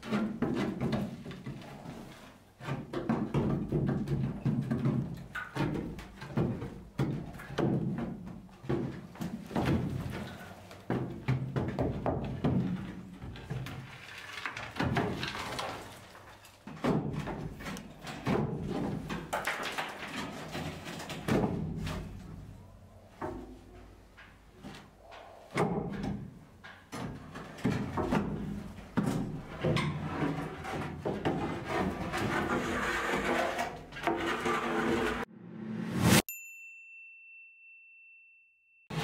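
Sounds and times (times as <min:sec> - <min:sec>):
demolition knocks bangs and scraping: 0:02.6 - 0:22.6, 0:25.6 - 0:34.6.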